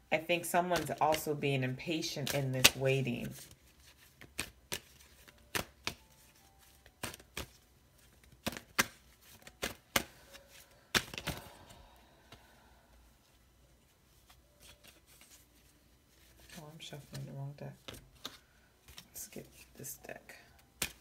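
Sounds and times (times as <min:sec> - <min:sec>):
cards being shuffled: 0:00.6 - 0:12.5, 0:13.8 - 0:19.9, 0:20.6 - 0:21.0
card slaps and taps: 0:02.2 - 0:02.8, 0:04.2 - 0:06.1, 0:07.0 - 0:07.6, 0:08.2 - 0:10.1, 0:10.9 - 0:11.5, 0:20.8 - 0:21.0.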